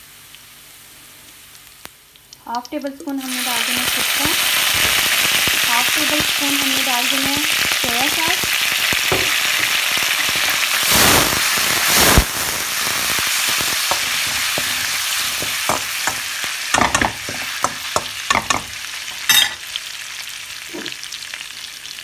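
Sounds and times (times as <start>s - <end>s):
ginger and garlic sizzling in oil: 0.0s - 22.0s
spatula scraping a wok: 13.8s - 19.6s.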